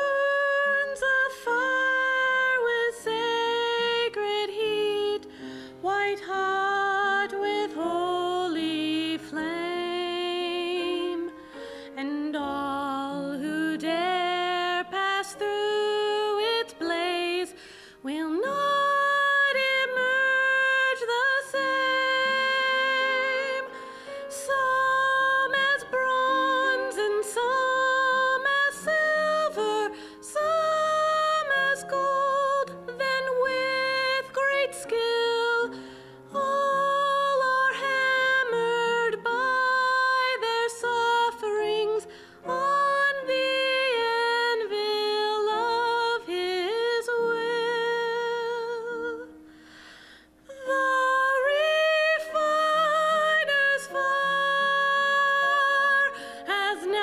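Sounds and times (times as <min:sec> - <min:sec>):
woman singing into a microphone: 0:00.0 - 0:49.5, 0:50.5 - 0:57.0
soft instrumental accompaniment: 0:00.0 - 0:57.0.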